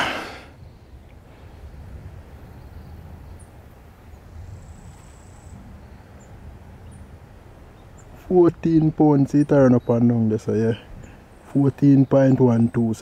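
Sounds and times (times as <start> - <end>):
thin high whine: 0.0 - 0.5.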